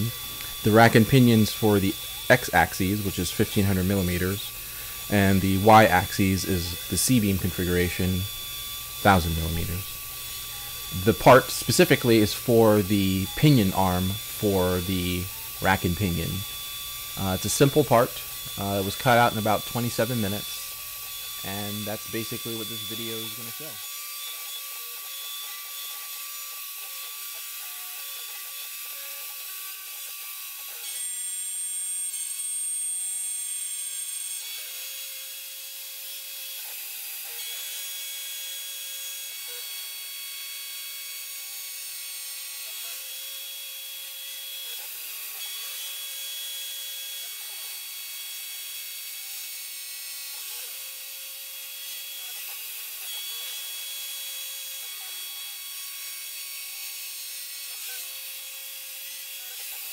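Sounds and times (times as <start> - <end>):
router milling aluminium: 0.0 - 26.9.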